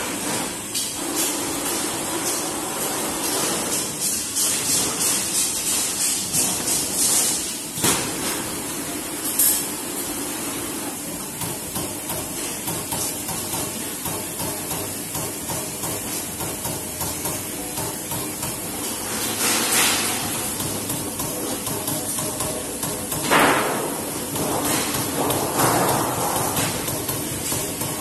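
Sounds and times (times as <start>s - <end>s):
machine running noise: 0.0s - 28.0s
punching press knocking strokes: 11.4s - 28.0s.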